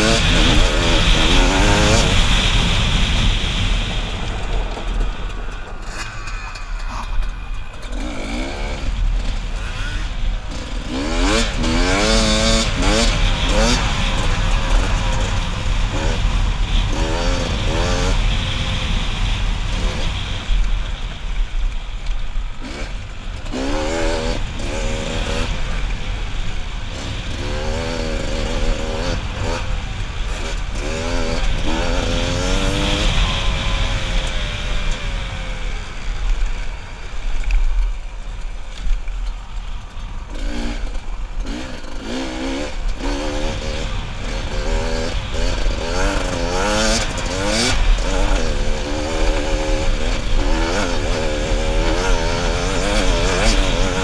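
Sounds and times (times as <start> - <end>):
dirt bike engine revving: 0.0 - 21.3, 22.4 - 37.5, 38.4 - 54.0
rumble of rushing air: 0.0 - 54.0.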